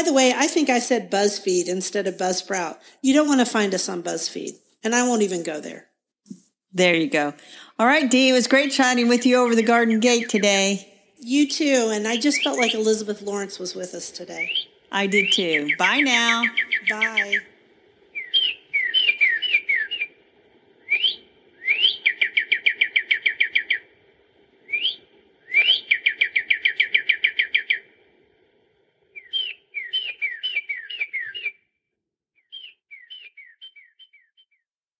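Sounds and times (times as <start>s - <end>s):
songbird whistles and trills: 9.5s - 10.7s, 11.9s - 17.5s, 18.1s - 20.2s, 20.8s - 23.9s, 24.6s - 27.9s, 29.2s - 31.7s, 32.4s - 34.6s.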